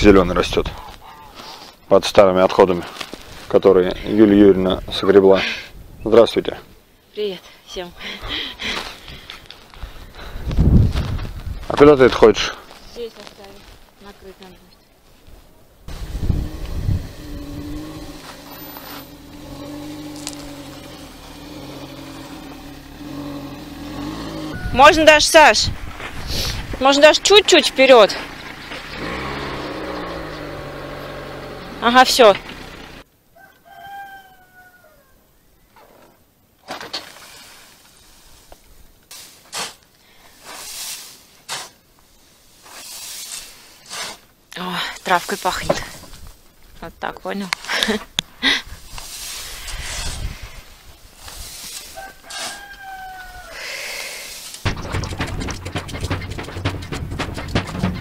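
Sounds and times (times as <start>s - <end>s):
car engine running: 15.9s - 24.5s, 27.4s - 33.0s, 54.7s - 58.0s
shovel blade scraping: 17.6s - 22.9s, 36.7s - 46.0s, 48.8s - 52.8s, 54.0s - 58.0s
low rumbling thumps: 54.6s - 58.0s.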